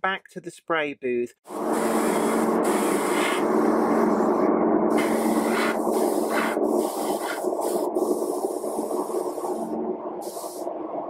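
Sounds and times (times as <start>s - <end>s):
paint spray gun hissing: 1.5s - 4.3s, 4.9s - 10.7s
steady low hum: 1.5s - 11.0s.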